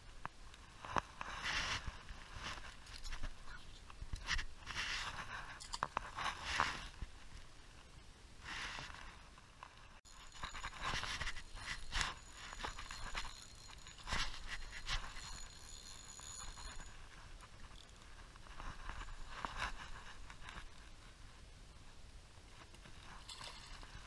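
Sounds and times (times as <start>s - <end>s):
scraping and rustling of handling: 0.8s - 7.5s, 8.5s - 21.0s
fishing reel being cranked: 10.1s - 17.1s
faint high whine: 10.1s - 22.4s.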